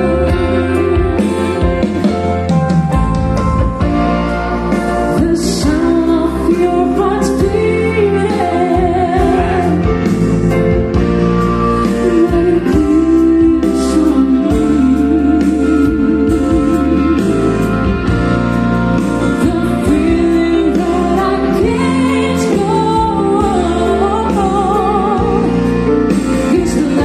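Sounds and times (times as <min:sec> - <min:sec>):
song through loudspeakers: 0:00.0 - 0:27.0.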